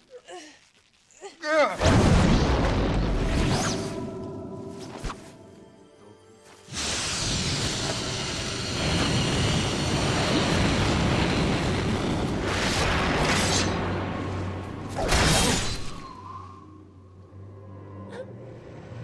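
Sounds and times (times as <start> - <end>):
dramatic score: 1.8 - 19.0
swooshes: 3.0 - 5.5
loud rush of noise: 6.7 - 14.9.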